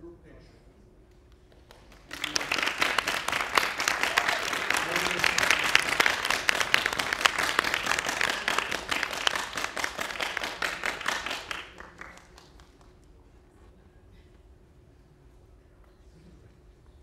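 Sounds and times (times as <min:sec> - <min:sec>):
faint room hum: 0:00.0 - 0:17.0
audience applauding: 0:01.5 - 0:13.0.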